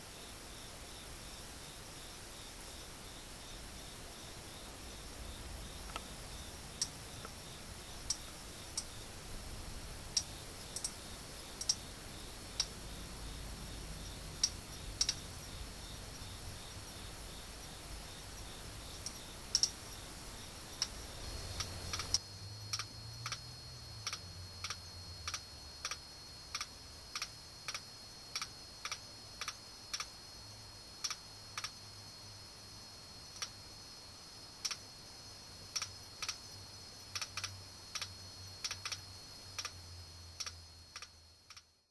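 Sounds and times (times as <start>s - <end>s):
faint hiss: 0.0s - 41.9s
katydid clicks: 5.8s - 6.1s, 6.8s - 7.4s, 10.2s - 11.0s, 11.6s - 11.8s, 14.4s - 15.2s, 19.0s - 19.8s, 20.8s - 30.2s, 31.0s - 31.8s, 33.3s - 33.6s, 34.6s - 34.9s, 35.7s - 36.5s, 37.1s - 41.8s.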